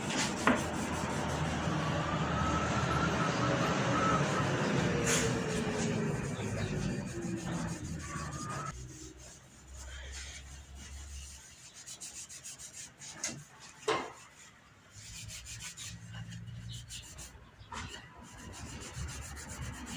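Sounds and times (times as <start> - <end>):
engine-like drone: 0.7 - 8.8
cloth rubbing on wooden board: 5.5 - 13.5.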